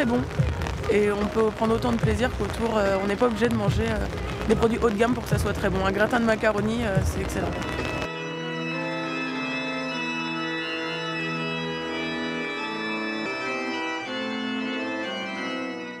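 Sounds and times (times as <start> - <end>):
organ playing sustained chords: 6.3 - 16.0.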